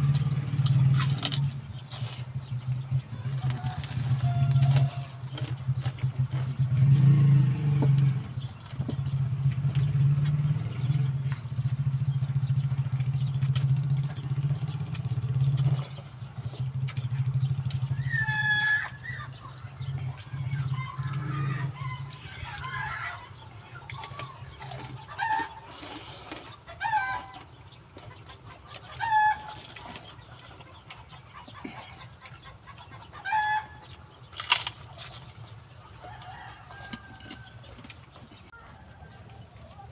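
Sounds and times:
chickens clucking: 0.0s - 39.9s
rooster crowing: 3.2s - 5.3s, 36.0s - 37.9s.

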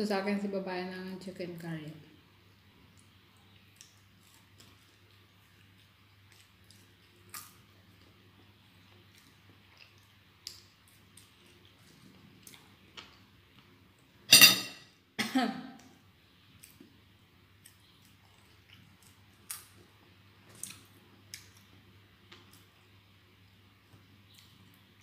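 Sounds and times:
person chewing: 2.9s - 13.6s, 17.6s - 22.8s
person coughing: 15.2s - 15.7s.

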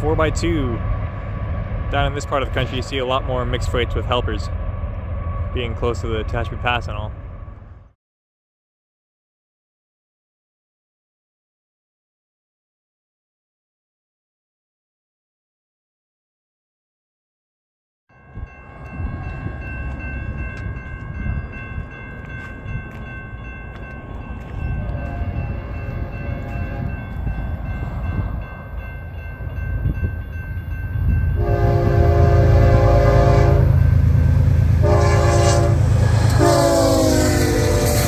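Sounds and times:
locomotive engine rumble: 0.0s - 7.9s, 18.4s - 38.0s
locomotive air horn blasts: 25.0s - 27.0s, 31.4s - 34.1s, 34.7s - 38.0s.

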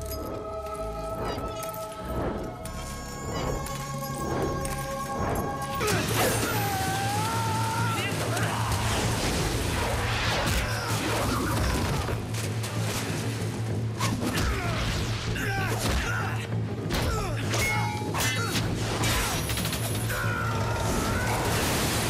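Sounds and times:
background music: 0.0s - 22.0s.

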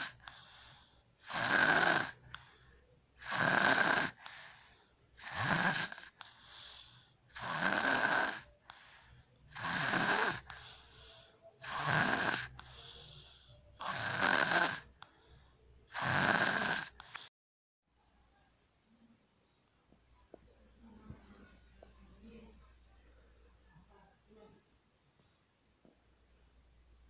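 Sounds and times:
girl snoring loudly: 0.0s - 0.4s, 1.2s - 2.5s, 3.2s - 4.6s, 5.2s - 8.5s, 9.5s - 10.8s, 11.6s - 13.0s, 13.8s - 15.0s, 15.9s - 17.3s
soft breath out: 0.2s - 1.2s, 4.2s - 5.0s, 6.2s - 7.2s, 8.6s - 9.4s, 10.5s - 11.6s, 12.6s - 13.8s.

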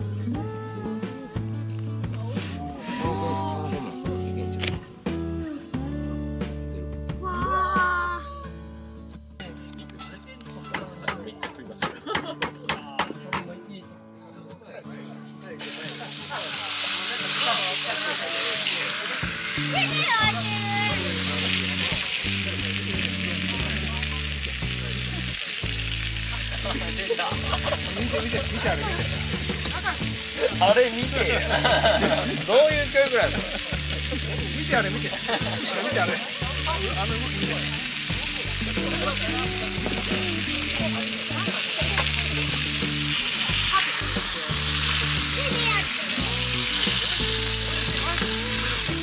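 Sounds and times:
background music: 0.0s - 49.0s
meat sizzling in a pan: 15.6s - 49.0s.

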